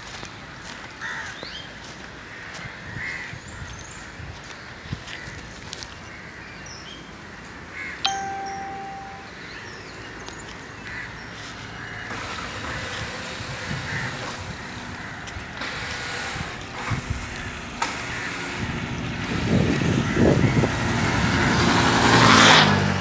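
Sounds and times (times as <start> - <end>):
crows cawing: 1.0 - 1.4
metallic ding: 8.0 - 9.4.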